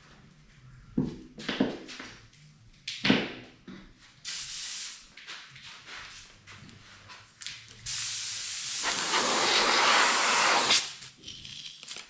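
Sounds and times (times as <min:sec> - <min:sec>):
airbrush air hissing: 0:07.9 - 0:10.9.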